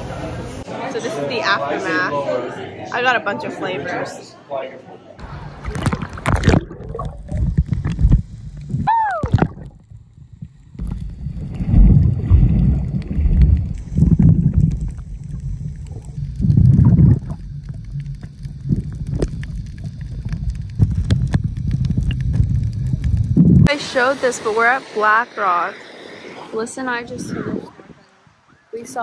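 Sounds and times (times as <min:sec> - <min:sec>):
underwater rushing water: 0:05.2 - 0:29.0.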